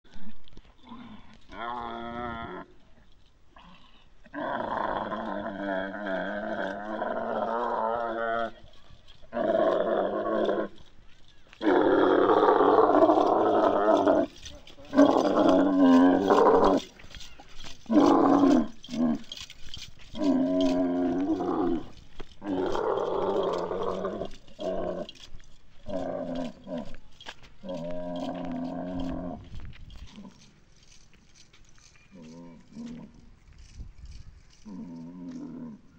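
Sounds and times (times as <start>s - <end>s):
camel calling: 4.3s - 30.5s.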